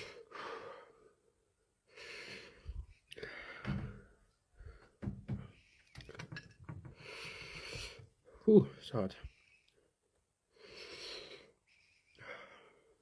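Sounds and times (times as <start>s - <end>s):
man breathing heavily: 0.0s - 5.7s, 6.8s - 8.5s, 10.5s - 13.0s
soft knocks and clicks: 4.9s - 7.0s.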